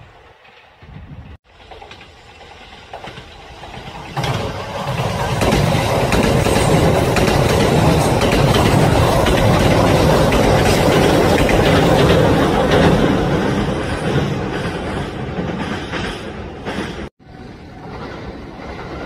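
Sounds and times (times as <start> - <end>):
rail clicks: 0.0 - 19.0
train rumbling on rails: 0.0 - 19.0.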